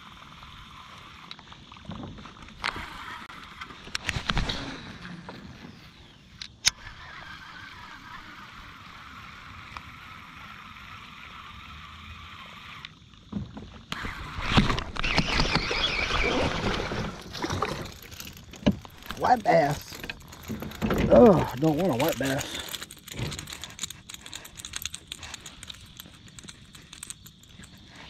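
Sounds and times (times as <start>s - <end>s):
splashing against kayak: 13.6s - 22.4s.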